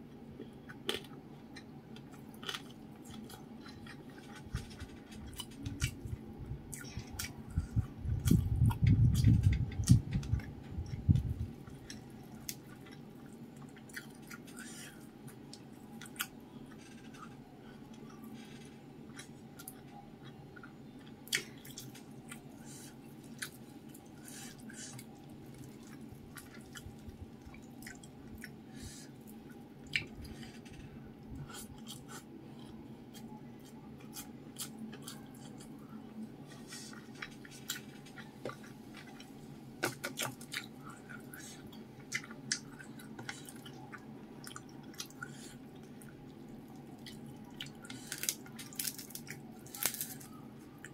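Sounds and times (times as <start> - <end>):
steady low hum: 0.0 - 50.9
chewing with wet mouth clicks: 6.7 - 17.3, 19.1 - 22.4, 23.2 - 28.6, 29.3 - 30.4, 36.7 - 50.9.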